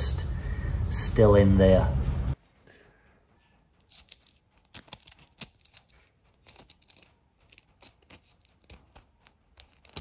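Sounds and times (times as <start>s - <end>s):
metal tool scraping inside key: 3.8s - 10.0s.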